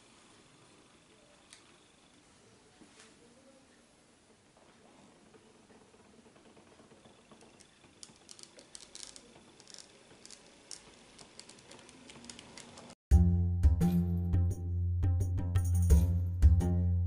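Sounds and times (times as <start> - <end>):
model train wheels clicking: 5.2 - 13.0.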